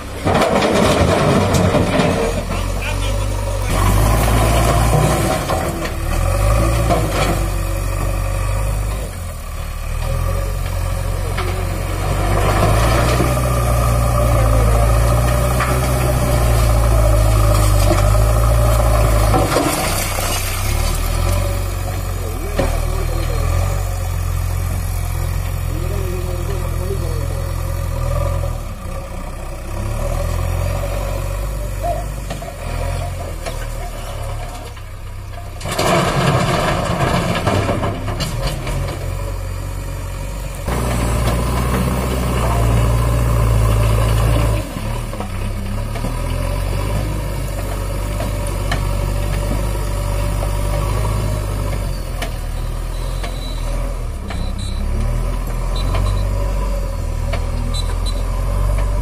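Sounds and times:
stones clattering into lorry bed: 0.0s - 2.9s, 14.9s - 23.3s, 32.3s - 39.1s
diesel engine running and revving: 0.0s - 59.0s.

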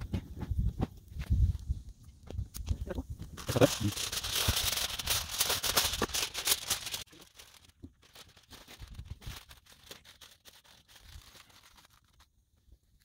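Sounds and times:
aluminium foil crinkling and tearing: 3.2s - 13.0s.

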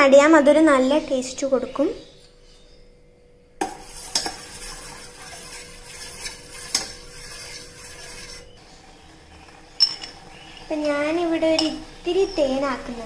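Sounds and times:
spoon scraping metal saucepan: 3.6s - 10.7s
spoon clinking against metal: 9.8s - 10.4s, 11.5s - 11.8s.

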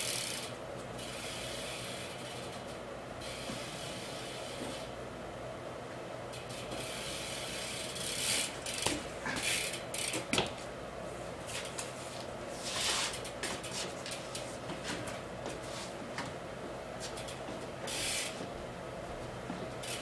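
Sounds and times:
steady low hum: 0.0s - 20.0s
bike tyres scuffing on floor: 11.3s - 16.4s, 17.0s - 18.5s.

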